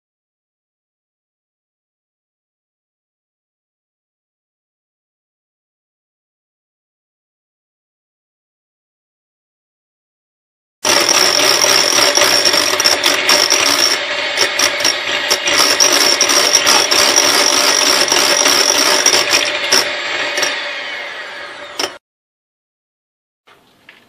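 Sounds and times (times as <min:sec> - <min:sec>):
electric hand mixer whisking: 0:10.8 - 0:22.0.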